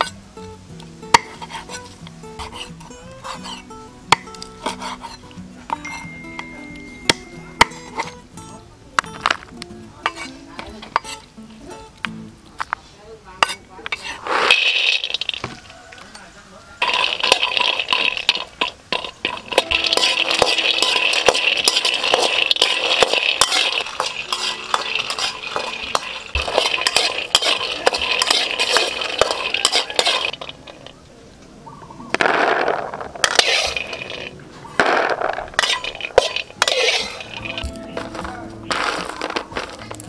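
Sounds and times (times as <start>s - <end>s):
peanuts rattling in a metal wok: 13.9s - 15.7s, 16.8s - 30.9s, 32.3s - 34.3s, 35.0s - 40.0s.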